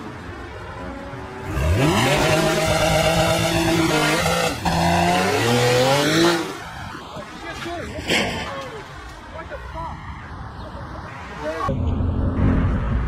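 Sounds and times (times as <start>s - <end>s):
car engine at full throttle: 1.4s - 6.6s.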